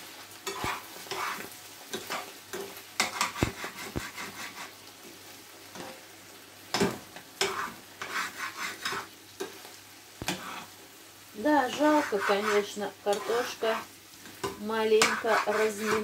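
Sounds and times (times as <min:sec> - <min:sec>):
food sizzling: 0:00.0 - 0:16.0
spoon scraping a frying pan: 0:00.4 - 0:04.8, 0:06.8 - 0:09.6, 0:10.2 - 0:10.8, 0:11.6 - 0:16.0
spoon knocking against pan: 0:14.4 - 0:15.2.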